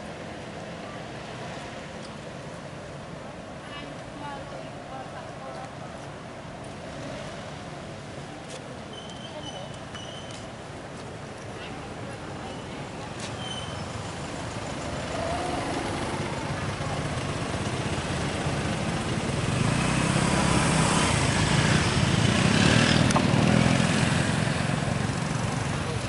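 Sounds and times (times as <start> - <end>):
vehicle engine approaching: 13.6 - 26.0.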